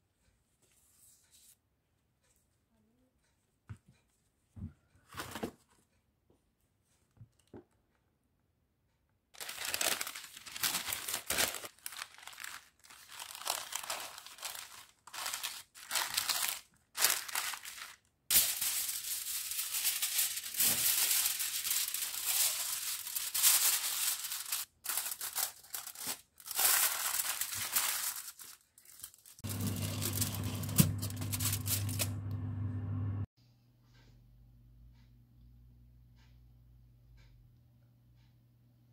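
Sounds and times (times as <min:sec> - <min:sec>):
paper and foil crinkling: 0:09.4 - 0:32.2
low steady hum: 0:29.5 - 0:38.9.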